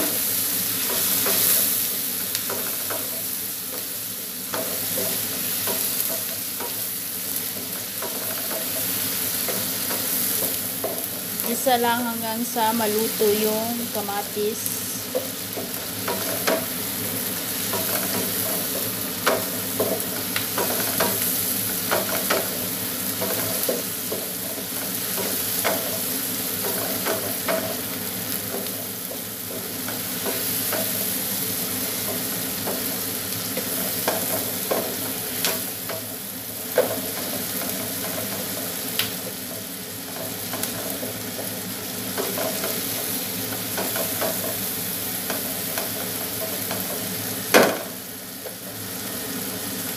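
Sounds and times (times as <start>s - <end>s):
food sizzling in a frying pan: 0.0s - 49.9s
spatula scraping and knocking pan: 4.5s - 11.5s, 15.0s - 36.1s.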